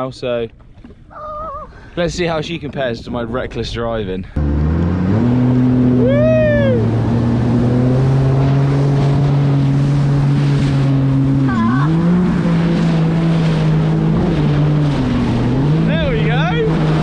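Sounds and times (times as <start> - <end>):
jet ski engine running: 4.4 - 17.0
water rushing and spray: 4.6 - 17.0.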